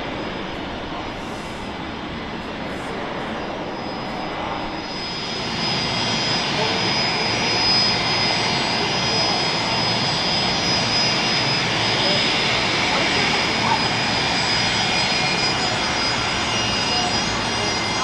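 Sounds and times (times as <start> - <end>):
jet engines rushing: 0.0 - 18.0.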